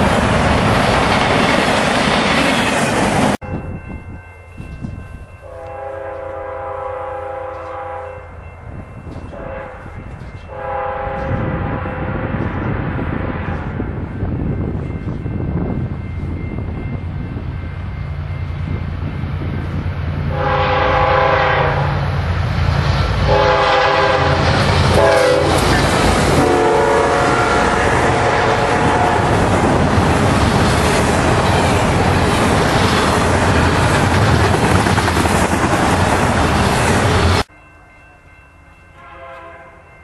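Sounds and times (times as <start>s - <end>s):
freight cars rumbling on rails: 0.0s - 5.3s, 11.0s - 37.5s
diesel locomotives passing: 0.0s - 40.0s
train horn blasts: 5.4s - 8.4s, 9.2s - 13.9s, 20.2s - 22.2s, 23.0s - 29.5s, 38.9s - 40.0s.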